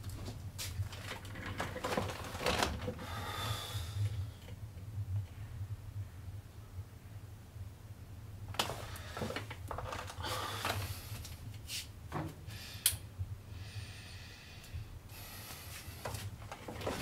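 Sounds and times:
rustling and fumbling: 0.0s - 3.1s, 8.5s - 12.4s, 16.0s - 17.0s
low steady hum: 0.0s - 17.0s.

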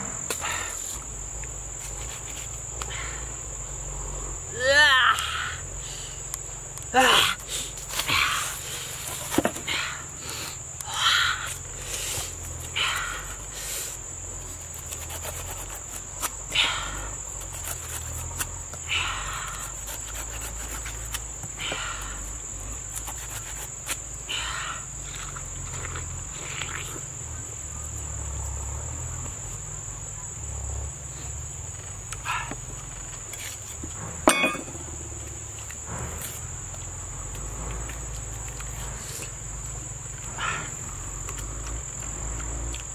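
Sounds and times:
insects droning: 0.0s - 42.9s
machete slicing pineapple rind: 14.5s - 16.5s, 17.3s - 18.8s, 19.4s - 21.3s, 22.8s - 24.0s.

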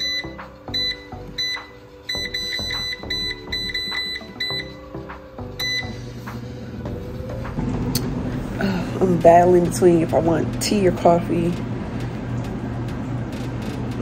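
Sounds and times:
control panel beeping: 0.0s - 4.8s, 5.6s - 6.0s
background music: 0.0s - 11.5s.

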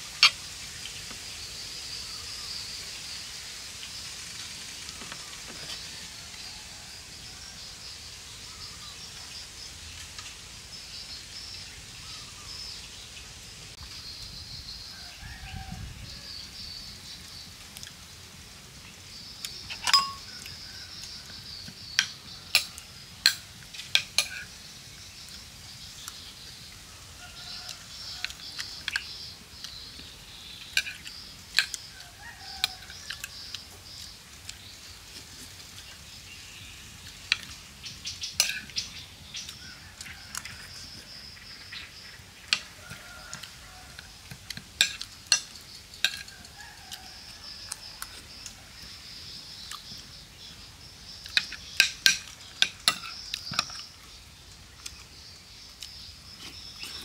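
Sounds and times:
steady high hiss: 0.0s - 57.0s
metal spoon scraping ceramic plate: 19.7s - 20.2s.

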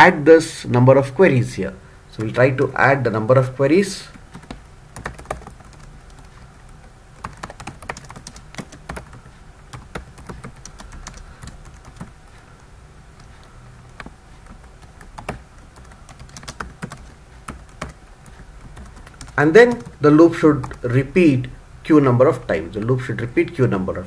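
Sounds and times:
keyboard keys clicking: 4.1s - 12.4s, 13.2s - 20.0s.

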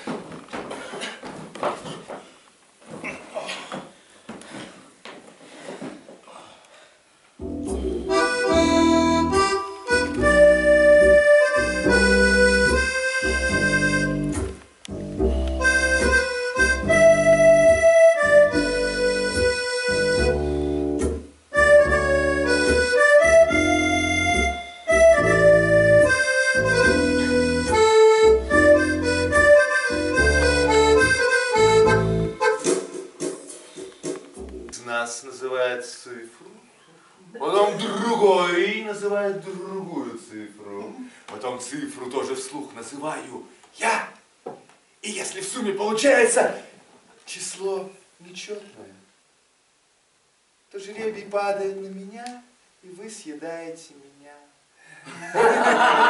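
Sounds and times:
accordion playing a tune: 7.4s - 33.1s.

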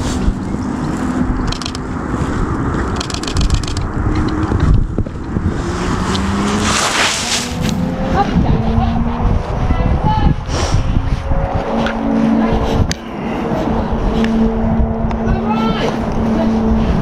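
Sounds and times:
fabric rubbing against microphone: 5.6s - 7.8s.

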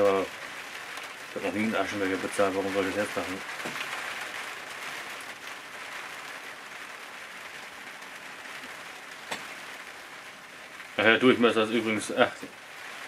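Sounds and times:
rain falling: 0.0s - 13.0s.

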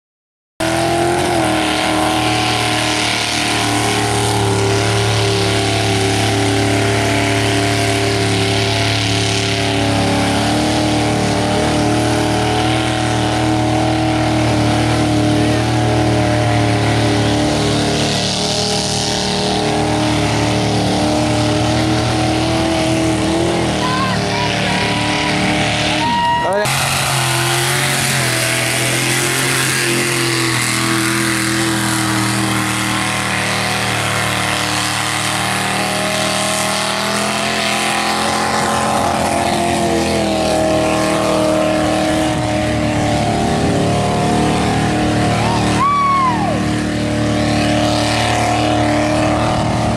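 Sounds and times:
truck engine at high revs: 0.6s - 49.9s.

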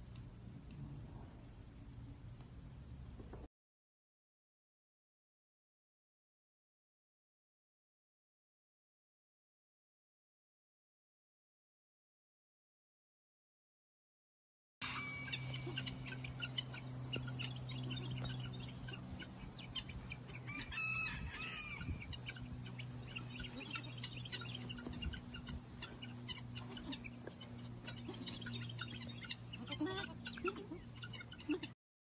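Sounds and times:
steady low hum: 0.0s - 3.5s, 14.8s - 31.7s
birds chirping: 14.8s - 31.8s.

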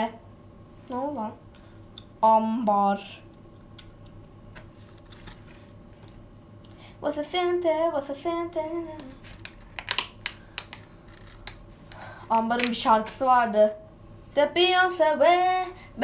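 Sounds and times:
girl singing: 7.0s - 9.2s, 12.4s - 13.8s, 14.4s - 16.0s.

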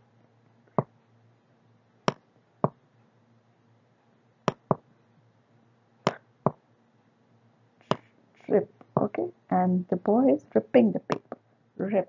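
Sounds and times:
stylus clicks: 4.5s - 4.8s.

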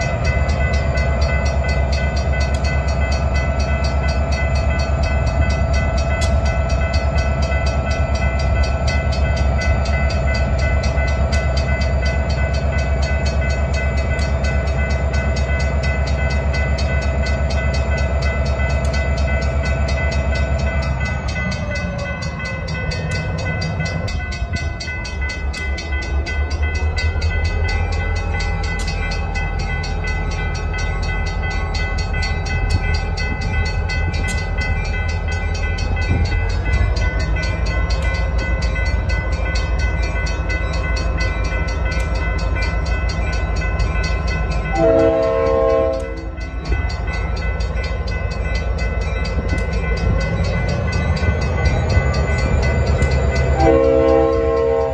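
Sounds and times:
locomotive engine droning: 0.0s - 54.9s
train horn blast: 44.7s - 46.4s, 53.6s - 54.9s.

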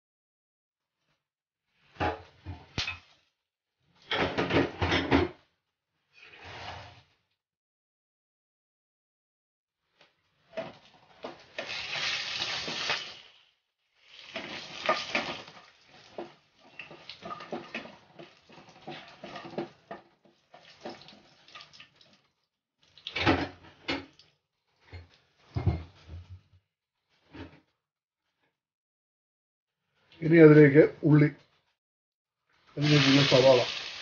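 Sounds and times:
spices sizzling in hot oil: 11.5s - 17.5s, 32.8s - 34.0s
wooden spatula scraping a pan: 14.2s - 21.5s.

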